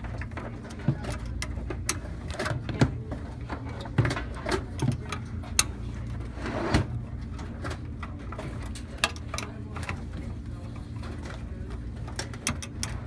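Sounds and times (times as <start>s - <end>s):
clicks and knocks of metal drive cage: 6.9s - 13.0s.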